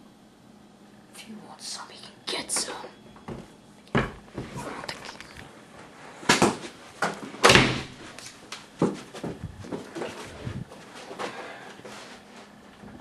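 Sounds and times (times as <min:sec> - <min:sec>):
sharp knocks and thumps: 0:03.3 - 0:04.6, 0:08.8 - 0:10.6.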